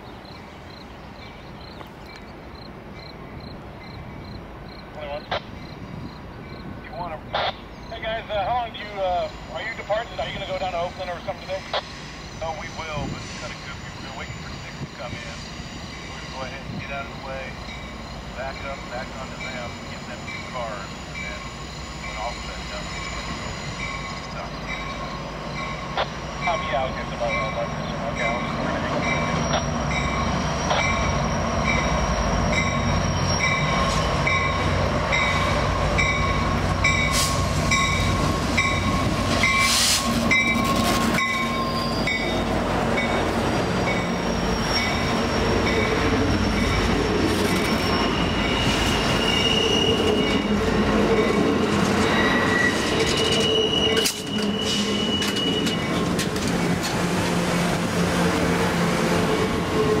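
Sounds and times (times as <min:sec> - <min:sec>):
diesel locomotive running: 0:00.0 - 1:00.0
train cars rolling by: 0:00.0 - 1:00.0
wheels squealing on curve: 0:08.9 - 0:27.0, 0:27.6 - 0:34.6, 0:35.2 - 0:56.4.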